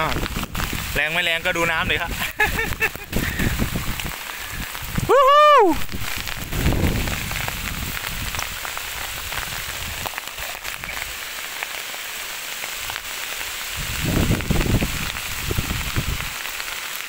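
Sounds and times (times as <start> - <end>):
heavy rain hissing: 0.0 - 17.0
raindrop hits: 0.0 - 17.0
low rumble on microphone: 3.1 - 11.1.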